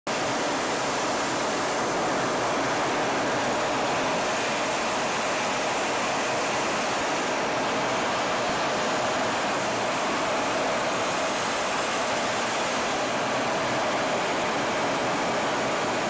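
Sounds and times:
jet cockpit roar: 0.1 - 16.0.

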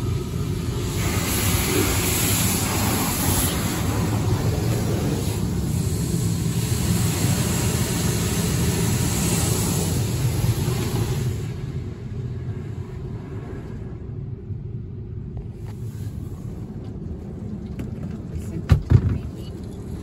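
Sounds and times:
car wash rushing hiss: 0.0 - 14.6
car wash low rumble: 0.0 - 20.0.

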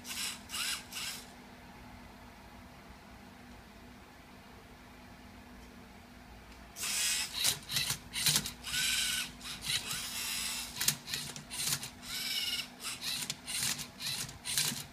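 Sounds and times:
robot motors whirring: 0.1 - 1.3, 6.8 - 14.9.

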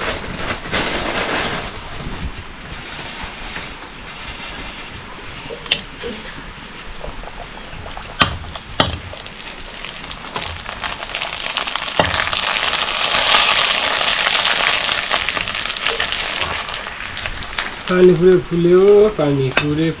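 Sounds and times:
dough deep-frying in oil: 7.0 - 20.0
sharp knocks: 8.0 - 9.2.

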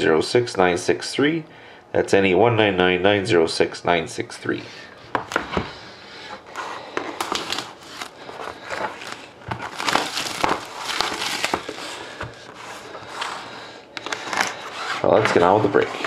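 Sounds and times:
plastic wrapping crinkling: 6.6 - 16.0.

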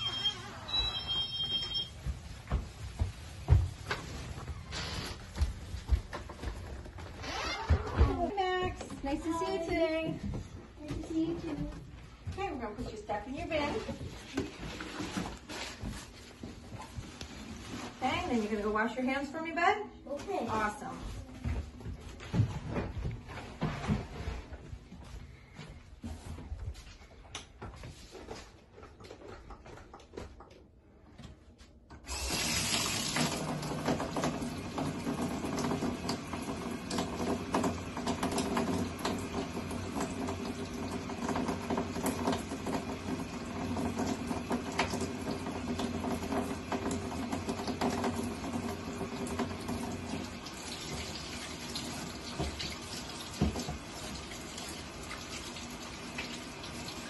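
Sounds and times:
faucet water running into sink: 32.1 - 57.0.

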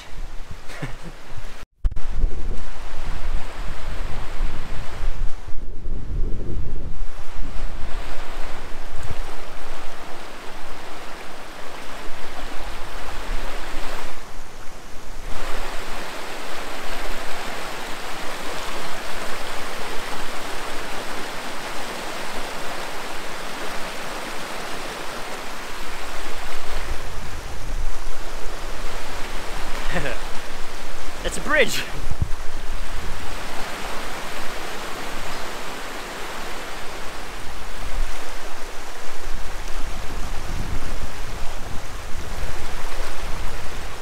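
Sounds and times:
wind buffeting microphone: 0.0 - 20.7, 31.9 - 44.0
river water rushing: 7.6 - 44.0.

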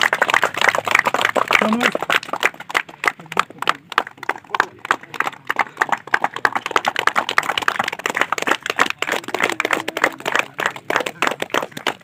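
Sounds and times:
people applauding: 0.0 - 12.0.

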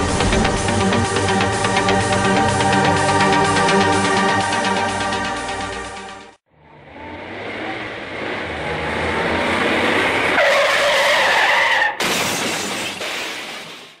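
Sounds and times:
rushing wind and road noise: 6.8 - 11.9
bicycle tyres skidding and squealing: 8.6 - 14.0.

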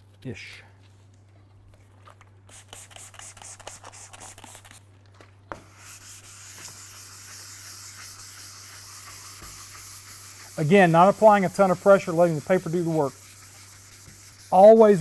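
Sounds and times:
sandpaper hissing on paint: 2.5 - 4.8, 5.7 - 15.0.

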